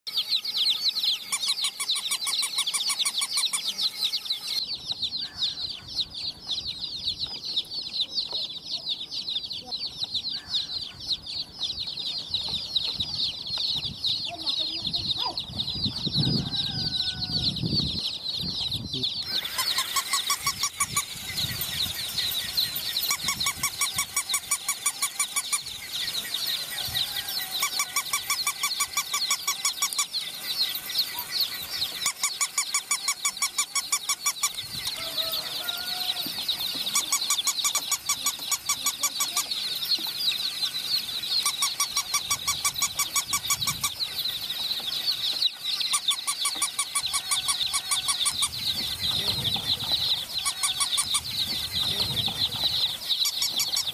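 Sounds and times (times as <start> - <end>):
baby chicks peeping: 0.1 - 53.9
walking toy pulsing sound: 19.2 - 53.9.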